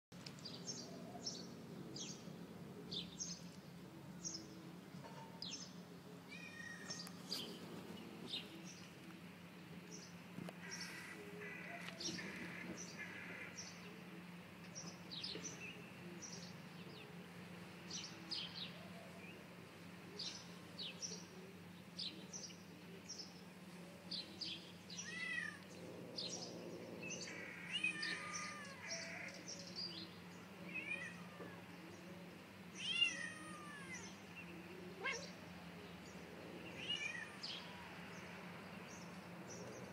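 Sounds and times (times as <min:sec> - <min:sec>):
small birds chirping: 0:17.8 - 0:39.9
cats meowing: 0:25.0 - 0:25.8, 0:27.2 - 0:29.3, 0:30.6 - 0:31.7, 0:32.8 - 0:34.2, 0:34.9 - 0:35.5, 0:36.7 - 0:37.6.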